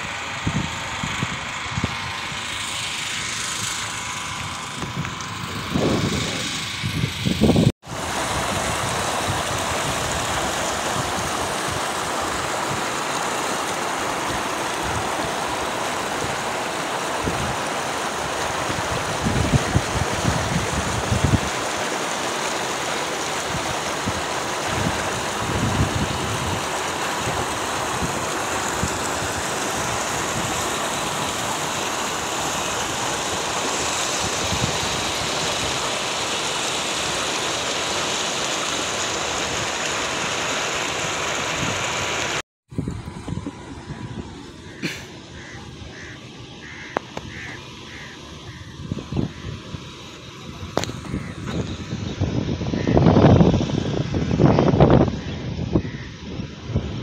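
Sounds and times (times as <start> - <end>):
floodwater rushing: 7.5 - 57.0.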